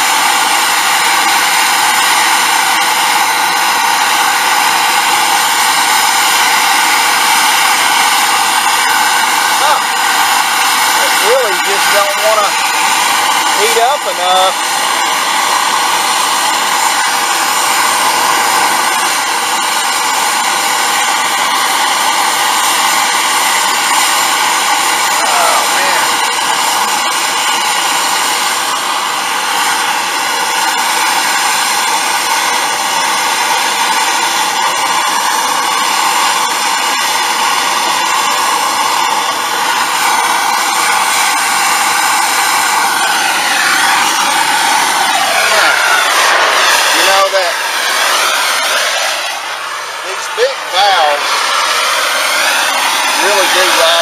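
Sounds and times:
gas torch hissing: 0.0 - 54.0.

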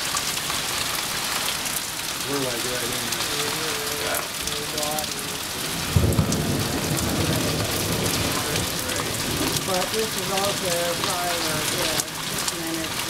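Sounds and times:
rain falling: 0.0 - 13.0
thunder crack and rumble: 4.4 - 12.1.

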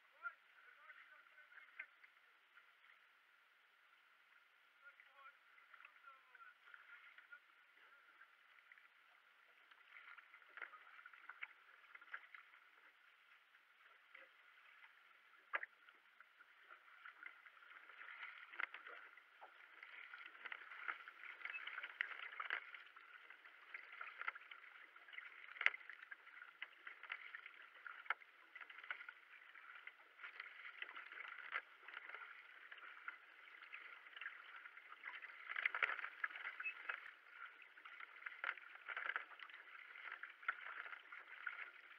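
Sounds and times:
paddle splashes: 0.0 - 41.9
water rushing along hull: 0.0 - 41.9.

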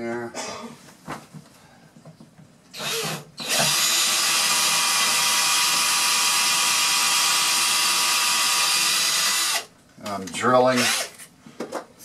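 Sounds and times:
cordless drill boring wood: 2.8 - 9.7, 10.8 - 11.2.

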